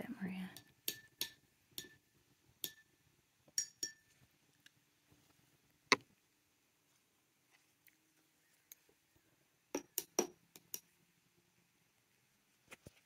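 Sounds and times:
small glass vessels clinking: 0.6 - 2.9, 3.5 - 4.2.

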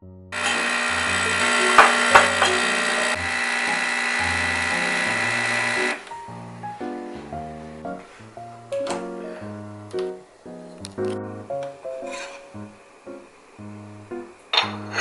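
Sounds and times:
coffee machine pump whining: 0.4 - 6.0
soft background music: 0.9 - 15.0.

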